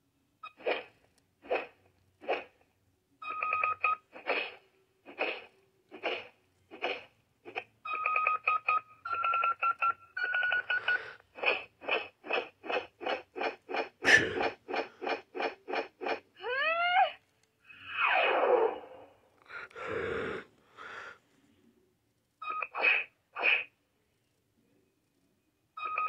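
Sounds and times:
toy electronic beeps: 0:03.2 - 0:04.1, 0:07.8 - 0:11.0, 0:22.4 - 0:23.0, 0:25.8 - 0:26.0.

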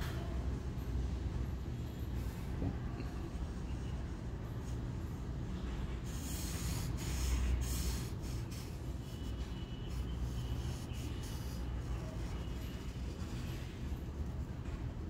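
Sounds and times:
marker scratching on paper: 0:05.9 - 0:14.5.

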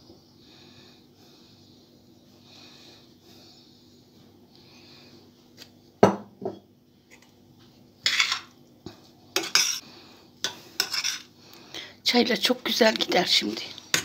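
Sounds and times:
metal spoon scraping metal bowl: 0:10.8 - 0:11.3.

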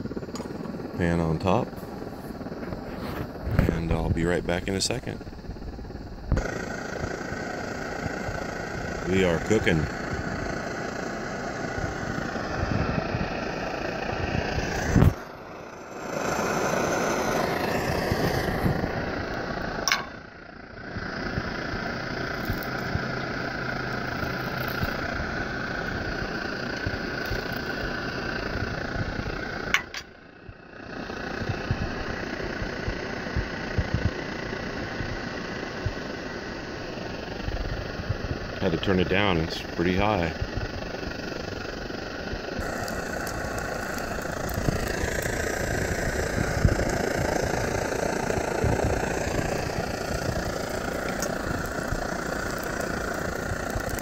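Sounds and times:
stove burner rushing: 0:00.0 - 0:54.0
stove click: 0:19.9 - 0:20.2.

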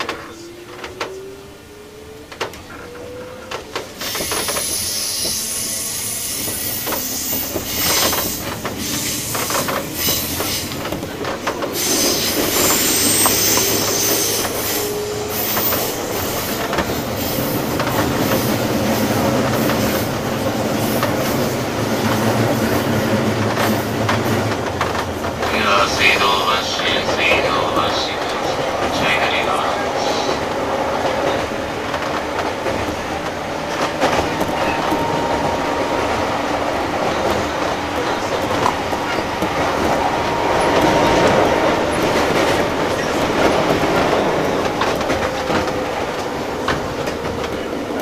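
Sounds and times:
rail joint clicks: 0:00.0 - 0:01.5, 0:02.2 - 0:48.0
train wheels rumbling on rail: 0:00.0 - 0:48.0
wheels squealing: 0:02.5 - 0:25.1.

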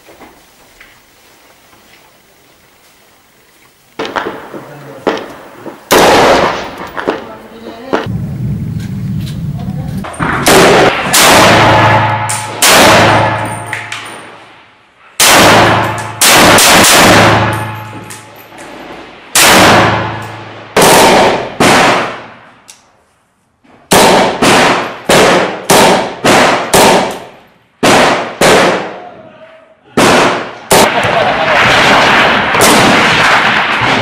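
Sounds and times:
rifle shots echoing indoors: 0:04.0 - 0:07.2, 0:10.1 - 0:22.7, 0:23.9 - 0:29.1, 0:30.0 - 0:34.0.

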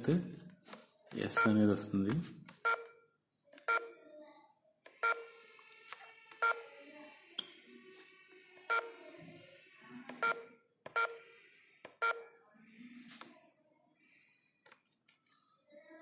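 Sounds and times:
keypad beeps: 0:02.6 - 0:03.0, 0:03.6 - 0:04.0, 0:04.9 - 0:05.4, 0:06.3 - 0:06.7, 0:08.7 - 0:09.0, 0:10.1 - 0:11.3, 0:11.9 - 0:12.4.

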